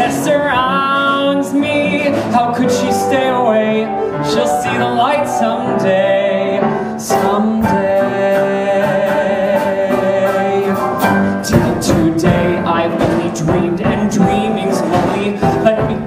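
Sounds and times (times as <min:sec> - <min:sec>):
musical theatre accompaniment: 0:00.0 - 0:16.0.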